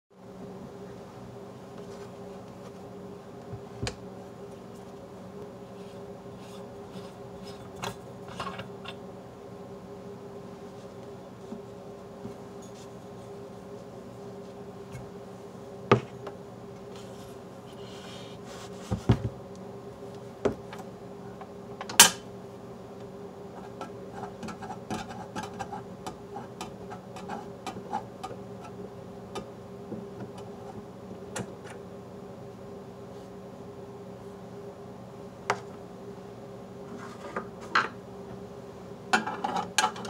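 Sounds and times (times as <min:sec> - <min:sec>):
steady hum: 0:00.1 - 0:40.0
small clicks and scrapes: 0:05.7 - 0:09.0, 0:23.6 - 0:28.8.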